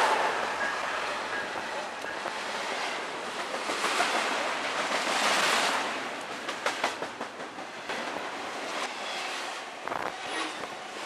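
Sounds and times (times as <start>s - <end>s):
train wheels clacking: 0.0s - 8.2s
train cars rushing past: 0.0s - 11.0s.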